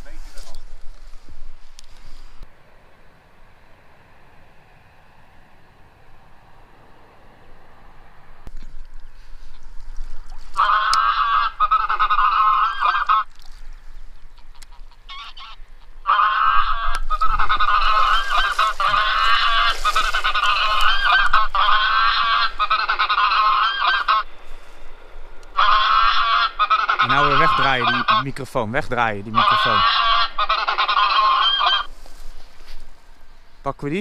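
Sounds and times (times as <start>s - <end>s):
geese honking from caller: 10.5s - 13.3s, 14.3s - 24.3s, 25.5s - 32.8s.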